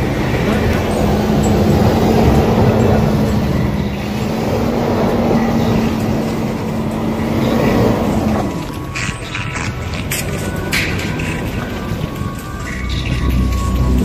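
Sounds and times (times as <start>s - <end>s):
engine droning: 0.0s - 14.0s
tyres in snow: 0.0s - 14.0s
sharp crackles: 5.5s - 14.0s.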